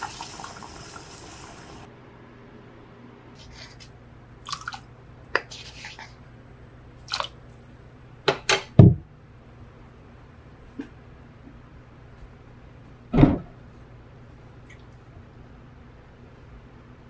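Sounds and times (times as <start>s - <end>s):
low thud: 13.1s - 13.5s.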